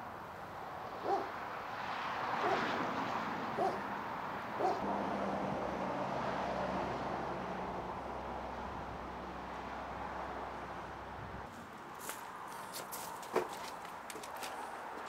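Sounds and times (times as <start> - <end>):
outdoor background noise: 0.0 - 15.0
dog barking: 1.0 - 1.3, 2.4 - 2.7, 3.6 - 3.8, 4.6 - 4.8.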